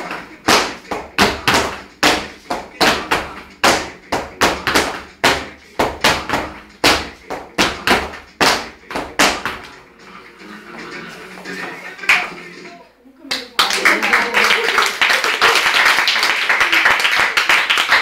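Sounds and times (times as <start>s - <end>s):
heeled shoes stamping on hard floor: 0.0s - 9.8s.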